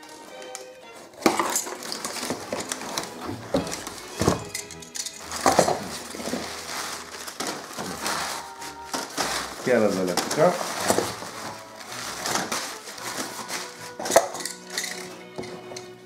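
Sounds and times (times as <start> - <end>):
packing paper rustling: 0.0 - 15.6
box cutter slitting cardboard: 5.3 - 14.4.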